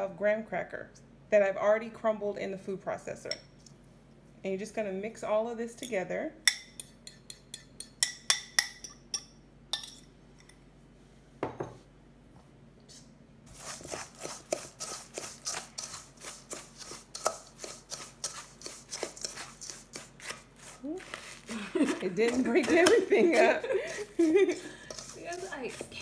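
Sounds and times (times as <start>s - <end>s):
ceramic bowl clinking on steel: 5.8s - 10.6s
fork scraping steel bowl: 13.5s - 26.0s.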